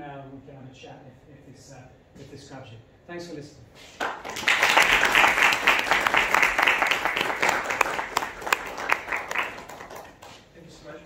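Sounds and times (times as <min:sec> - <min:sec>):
audience applauding: 0:04.0 - 0:10.4.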